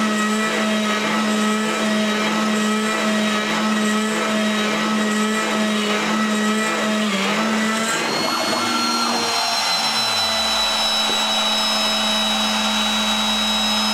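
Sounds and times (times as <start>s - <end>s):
router spindle motor whine: 0.0s - 13.9s
end mill cutting aluminium: 4.1s - 13.9s
low tone sliding downward: 7.9s - 13.9s.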